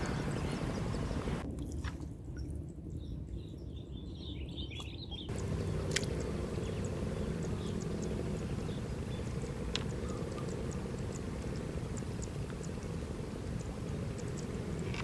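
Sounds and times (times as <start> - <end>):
faint sharp ticks: 5.3 - 15.0.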